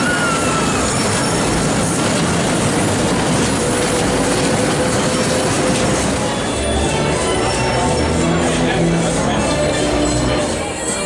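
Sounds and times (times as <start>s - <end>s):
carousel mechanical rattle: 0.0s - 11.0s.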